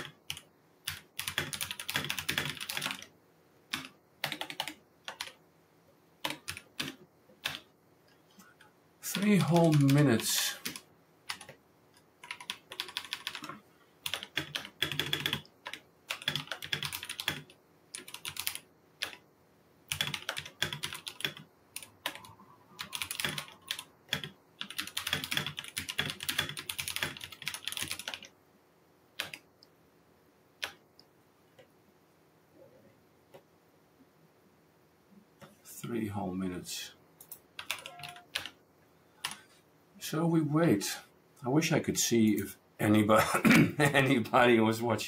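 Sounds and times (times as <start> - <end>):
typing on a computer keyboard: 0.0 - 3.1, 3.7 - 5.4, 6.2 - 7.7, 9.1 - 11.6, 12.2 - 19.2, 19.9 - 28.3, 29.2 - 29.5, 30.6 - 30.8, 37.2 - 38.6.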